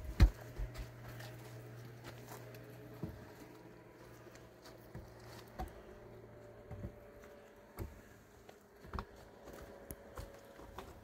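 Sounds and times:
log knocking and scraping: 0.0s - 6.0s.

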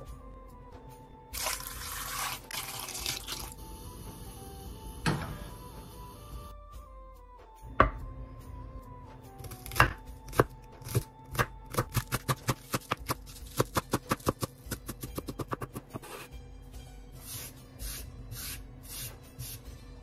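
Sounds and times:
knife chopping on wooden board: 9.4s - 16.1s.

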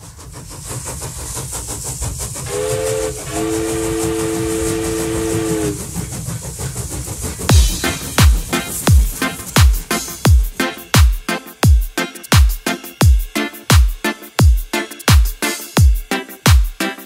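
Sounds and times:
steam locomotive chuffing: 0.0s - 14.4s
hissing steam: 0.0s - 17.0s
two-note locomotive whistle: 2.5s - 5.9s.

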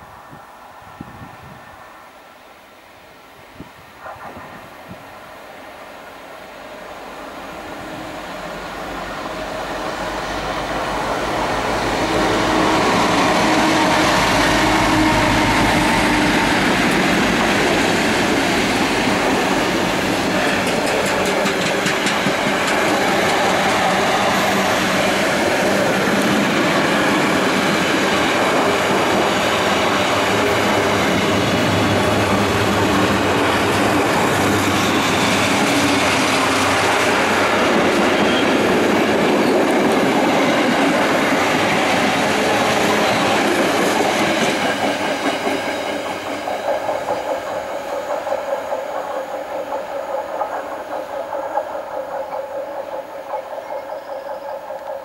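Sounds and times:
diesel locomotive passing: 4.0s - 55.0s
wheels clattering over rail joints: 16.8s - 24.7s.

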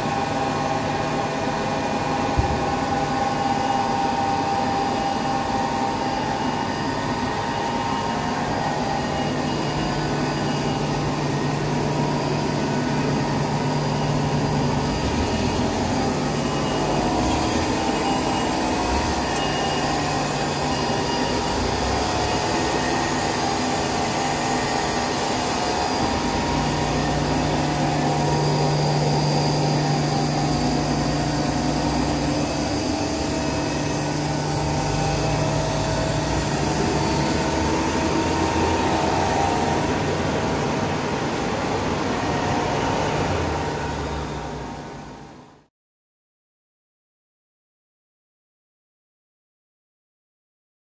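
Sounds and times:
surface grinder humming: 13.1s - 42.9s.

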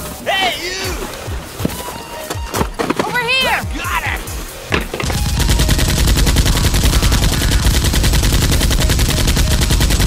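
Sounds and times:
automatic gunfire: 5.1s - 10.0s.

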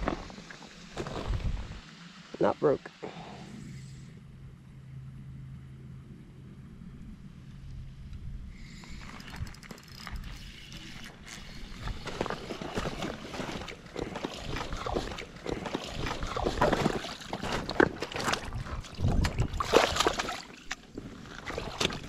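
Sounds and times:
fish splashing at water surface: 8.8s - 22.0s.

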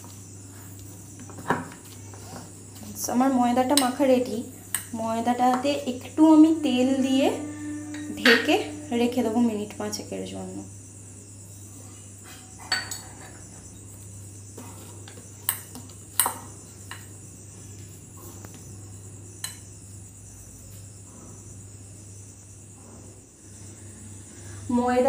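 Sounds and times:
high-pitched drone: 6.2s - 10.7s
clinks against bowl: 12.6s - 13.3s.

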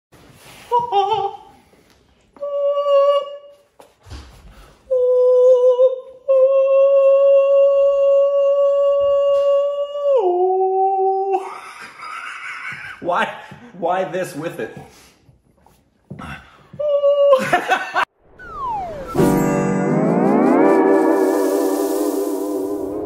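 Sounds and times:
man singing falsetto notes: 2.4s - 3.6s, 4.9s - 11.4s.

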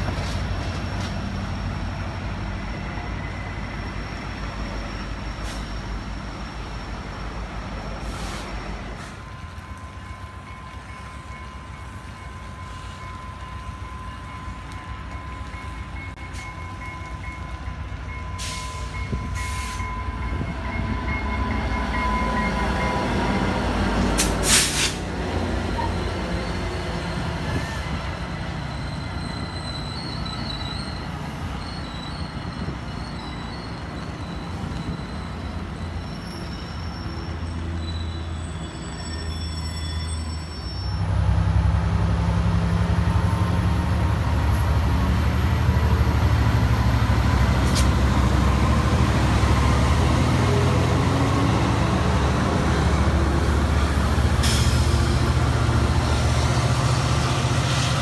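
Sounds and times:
diesel train passing: 0.0s - 58.0s
train wheels squealing: 2.7s - 9.4s, 18.1s - 23.6s, 25.6s - 41.2s, 46.8s - 58.0s.

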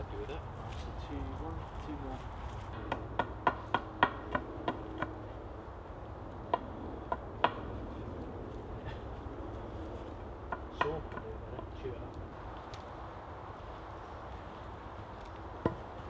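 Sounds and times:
knocks on timber beam: 2.9s - 5.1s.

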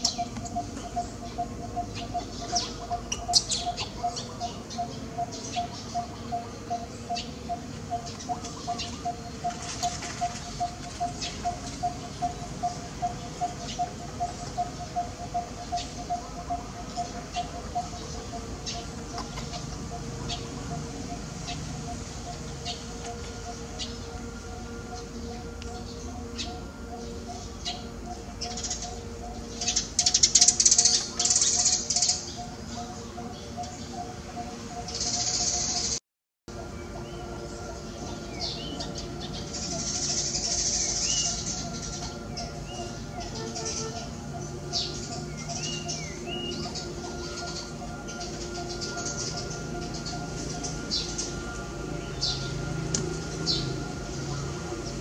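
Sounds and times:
high chirps: 0.0s - 36.0s.

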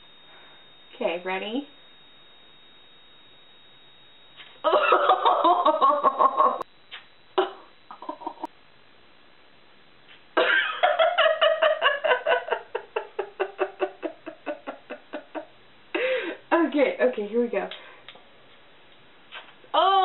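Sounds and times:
woman laughing: 4.7s - 6.6s, 7.4s - 8.5s, 10.4s - 16.2s.

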